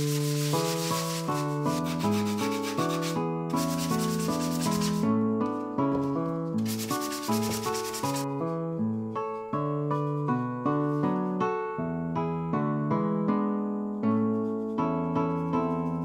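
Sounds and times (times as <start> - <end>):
sponge sanding plywood: 0.0 - 5.1, 6.6 - 8.3.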